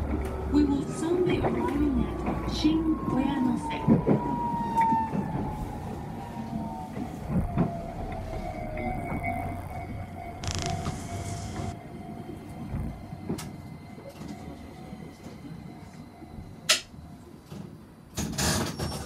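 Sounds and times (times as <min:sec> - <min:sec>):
train running gear rumble: 0:00.0 - 0:19.0
sharp clicks: 0:10.4 - 0:11.8.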